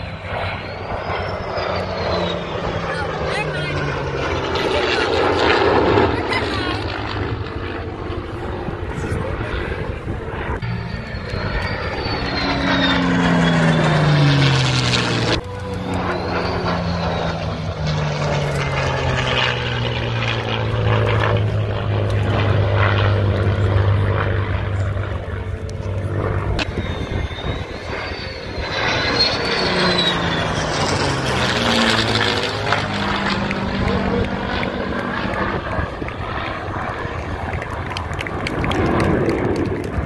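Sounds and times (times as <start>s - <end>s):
thin wavering whistle: 0.0s - 2.7s, 10.6s - 18.2s, 26.3s - 32.3s
aircraft engine drone: 0.0s - 40.0s.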